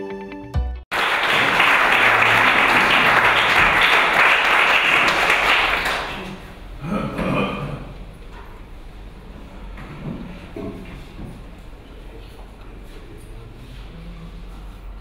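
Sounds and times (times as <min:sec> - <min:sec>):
audience applauding: 0:00.9 - 0:06.5.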